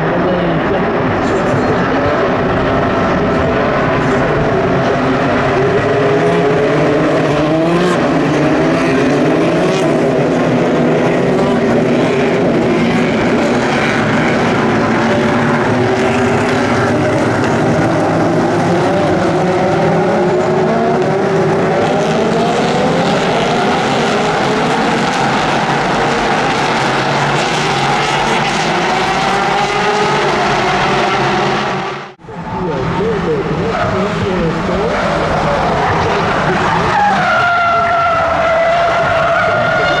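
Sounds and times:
racing car engines: 0.0s - 40.0s.

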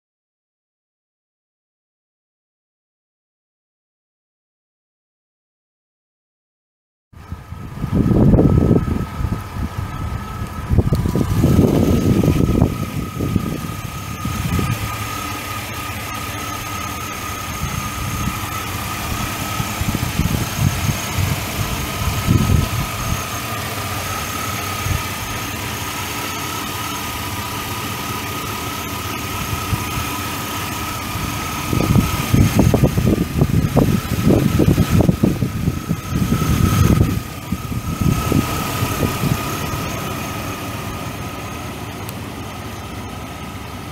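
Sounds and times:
irregular low rumbling: 7.2s - 43.9s
pickup engine idling: 7.2s - 43.9s.

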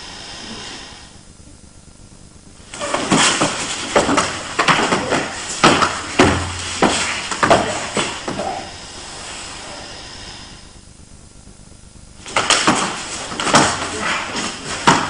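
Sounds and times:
faint hiss: 0.0s - 1.6s
bodies thudding on training mat: 2.8s - 8.7s, 12.2s - 15.0s.

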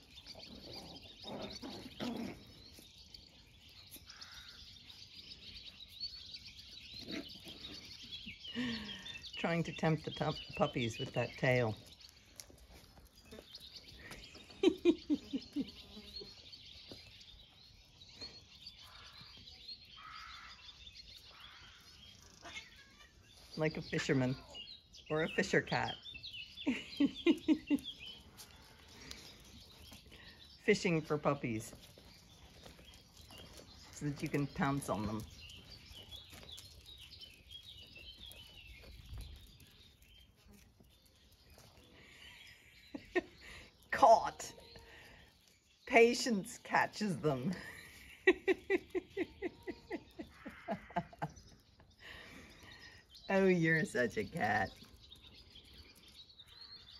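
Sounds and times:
birds chirping and singing: 0.0s - 56.9s
lower louder bird calls: 13.2s - 23.6s, 54.6s - 56.9s.

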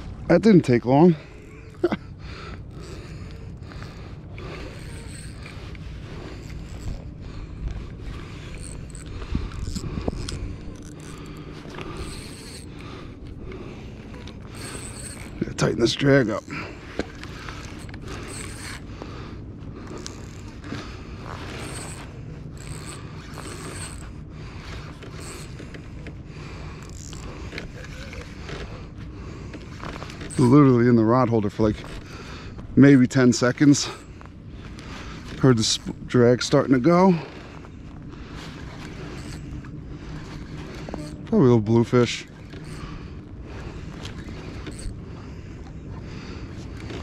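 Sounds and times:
fishing reel drag whirring: 0.0s - 47.0s
wind rumble on microphone: 2.2s - 14.6s.

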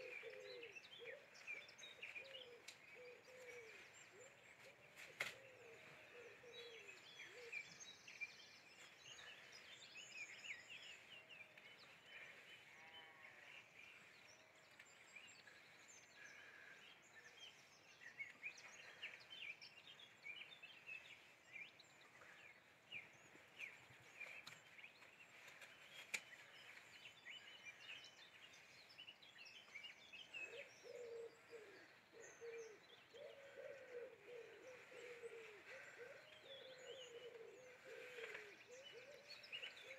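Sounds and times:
pigeon cooing: 0.0s - 1.3s, 2.2s - 3.8s, 30.5s - 39.9s
small birds chirping: 0.0s - 39.9s.

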